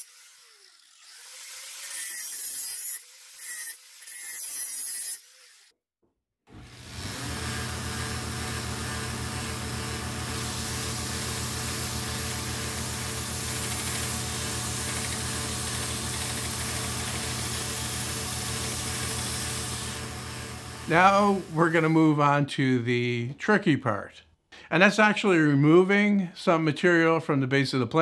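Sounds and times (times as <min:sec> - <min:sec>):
belt sander humming: 0:06.5 - 0:22.2
metal grinding against sander belt: 0:06.8 - 0:22.0.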